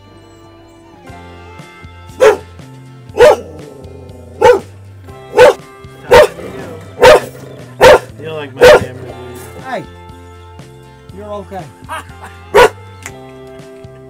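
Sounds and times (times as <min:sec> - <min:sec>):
dog barking loudly: 0:02.2 - 0:02.5, 0:03.2 - 0:04.7, 0:05.3 - 0:09.1, 0:12.5 - 0:12.8.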